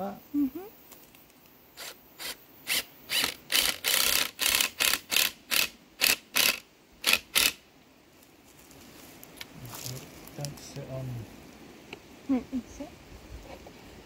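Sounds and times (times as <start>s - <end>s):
cordless drill driving screws: 1.8s - 7.6s.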